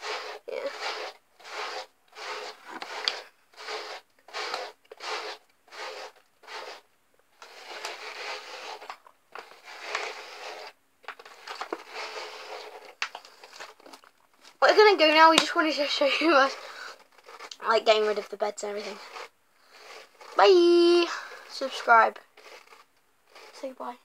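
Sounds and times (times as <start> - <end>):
hairbrush strokes through hair: 0.0 - 6.8, 7.4 - 10.8, 11.6 - 13.0, 14.6 - 24.0.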